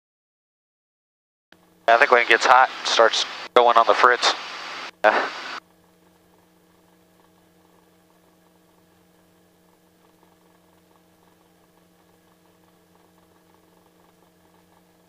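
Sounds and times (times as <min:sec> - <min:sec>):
faint steady hum: 0:01.6 - 0:15.0.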